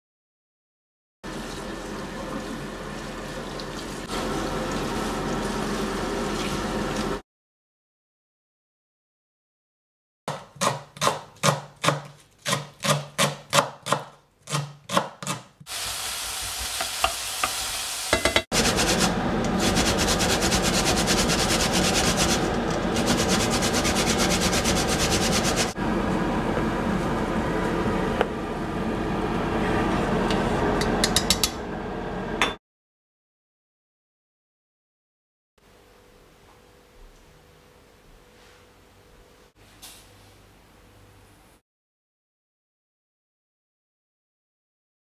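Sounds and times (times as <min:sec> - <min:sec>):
food grated on metal grater: 0:18.6 - 0:25.8.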